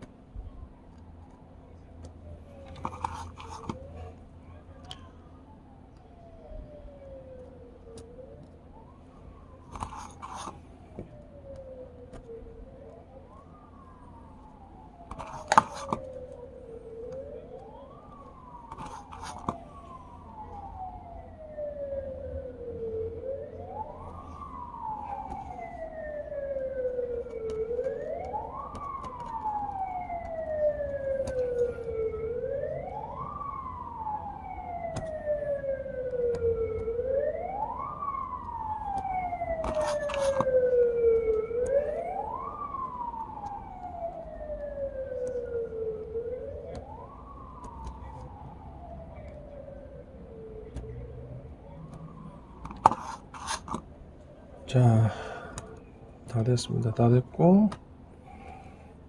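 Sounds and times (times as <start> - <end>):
siren wailing: 0.0 - 59.0.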